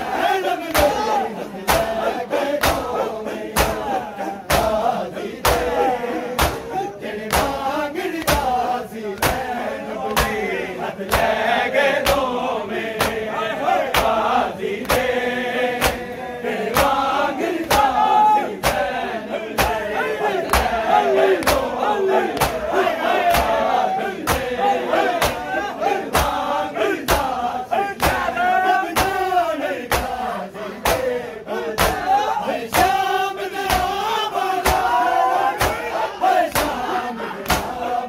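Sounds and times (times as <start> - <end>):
crowd of men chanting: 0.0 - 38.0
chest-beating slaps: 0.7 - 10.5, 11.1 - 11.4, 12.0 - 12.3, 12.9 - 13.3, 13.9 - 15.2, 15.8 - 18.0, 18.6 - 18.9, 19.5 - 24.5, 25.1 - 27.4, 28.0 - 28.3, 28.9 - 31.1, 31.7 - 37.8.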